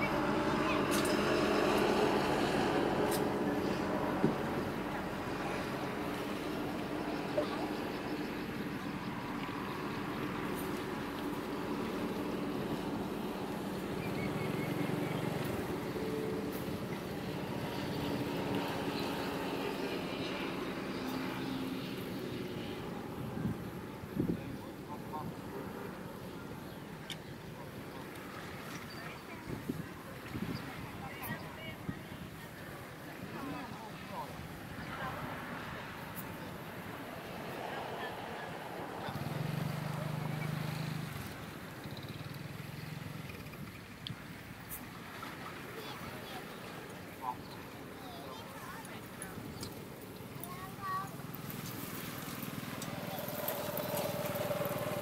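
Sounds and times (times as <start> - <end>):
faint voices: 0.0 - 42.2, 42.9 - 55.0
water noise: 0.0 - 55.0
small engine droning: 37.5 - 43.8, 51.2 - 55.0.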